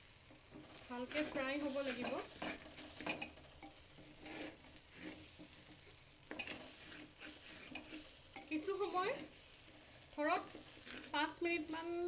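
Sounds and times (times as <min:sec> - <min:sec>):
faint sizzling: 0:00.0 - 0:12.0
spoon scraping a metal pot: 0:00.5 - 0:08.6, 0:09.2 - 0:11.2.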